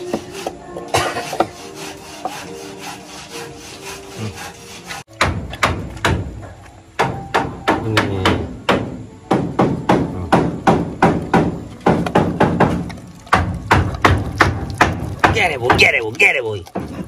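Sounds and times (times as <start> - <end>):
dog crunching on bone: 11.7 - 17.0.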